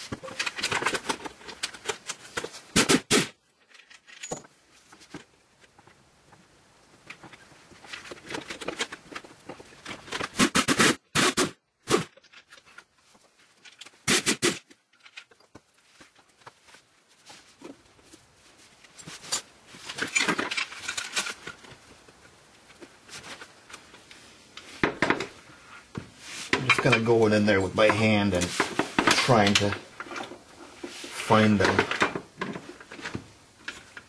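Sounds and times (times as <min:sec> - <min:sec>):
tools clattering and scraping on metal: 0:00.0 - 0:02.7, 0:03.6 - 0:05.2, 0:18.8 - 0:23.9, 0:26.3 - 0:34.0.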